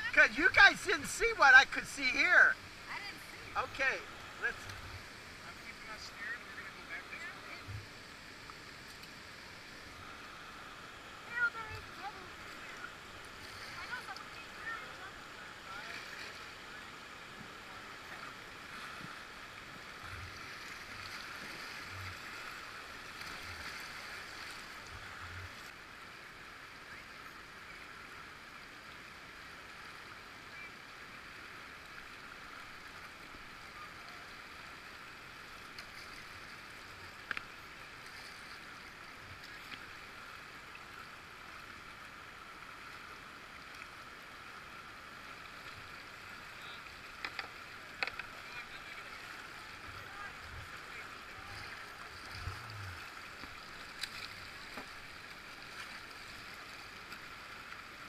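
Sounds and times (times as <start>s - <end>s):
flowing river water: 0.0s - 58.0s.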